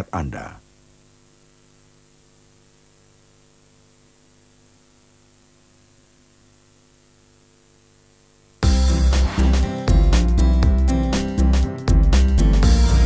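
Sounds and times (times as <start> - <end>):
faint mains hum: 0.0 - 9.4
tape hiss: 0.0 - 13.0.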